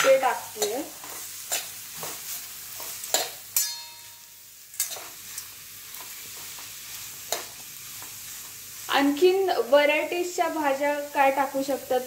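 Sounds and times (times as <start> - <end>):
metal spatula scraping a pan: 0.0 - 5.2
vegetables sizzling in oil: 0.0 - 12.0
metallic ring: 3.6 - 4.3.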